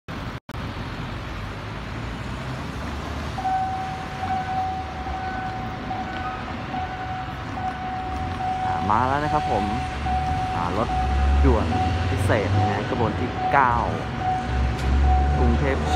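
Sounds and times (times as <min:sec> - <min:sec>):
road traffic rumbling: 0:00.1 - 0:15.9
level crossing warning tone: 0:03.4 - 0:15.9.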